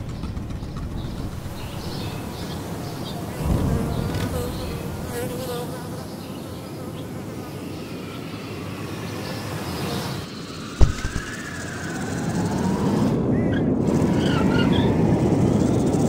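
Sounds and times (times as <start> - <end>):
buzzing hum: 10.8 - 11.4
low thump: 10.8 - 11.4
low rumble: 10.8 - 11.5.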